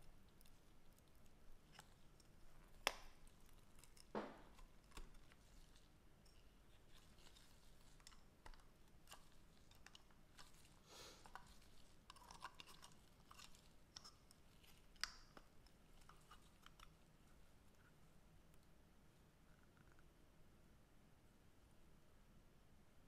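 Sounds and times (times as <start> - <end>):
small parts clicking and scraping: 1.7 - 17.0.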